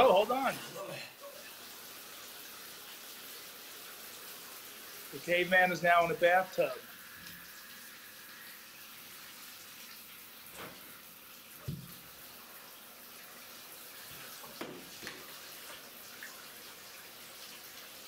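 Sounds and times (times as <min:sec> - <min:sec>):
faint steady hiss: 0:00.0 - 0:18.0
water splashing in a bathtub: 0:00.0 - 0:18.0.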